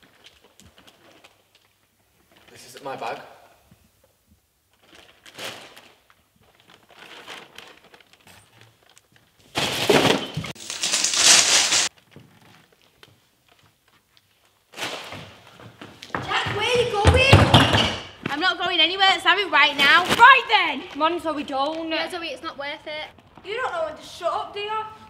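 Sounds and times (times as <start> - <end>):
aluminium foil crinkling: 0.0 - 2.6, 4.7 - 15.0
hands rummaging in a bag: 9.9 - 12.0.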